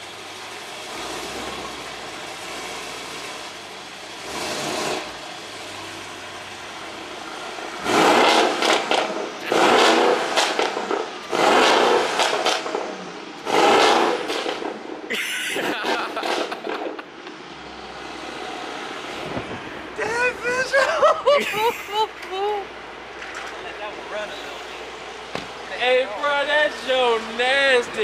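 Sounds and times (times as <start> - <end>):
car engine revving: 0.5 - 20.0.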